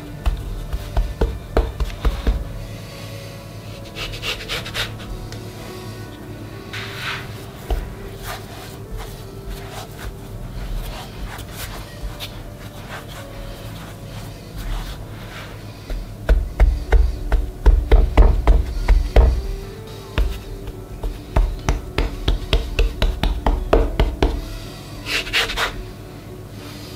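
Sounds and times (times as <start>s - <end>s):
low thumps of dough pressed: 0.0s - 2.8s, 7.6s - 13.6s, 14.6s - 24.7s
hand kneading dough on board: 0.0s - 2.9s, 3.6s - 25.9s.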